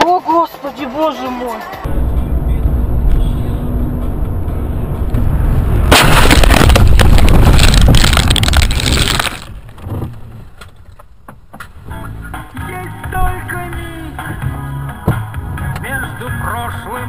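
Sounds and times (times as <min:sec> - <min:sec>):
road rumble inside a car: 0:01.8 - 0:11.9
car crash with crunching impacts: 0:05.1 - 0:11.3.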